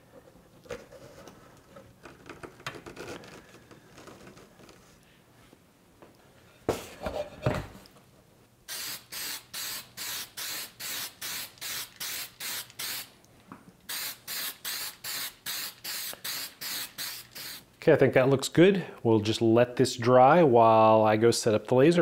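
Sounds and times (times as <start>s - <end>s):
aerosol spray hissing: 8.7s - 13.1s, 13.9s - 17.7s.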